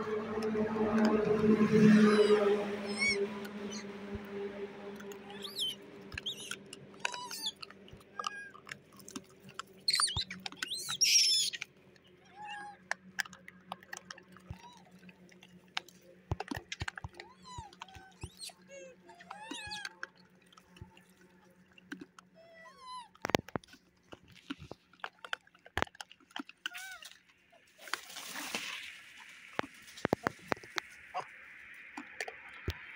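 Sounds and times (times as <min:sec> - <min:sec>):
short chirping calls: 0:02.0 - 0:04.0, 0:05.2 - 0:07.6, 0:09.9 - 0:11.6.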